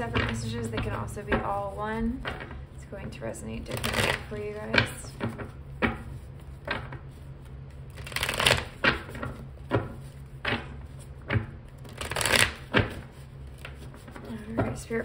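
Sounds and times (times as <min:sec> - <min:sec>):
cards rustling while shuffled: 0:03.6 - 0:15.0
cards snapping: 0:07.9 - 0:09.4, 0:11.8 - 0:13.0.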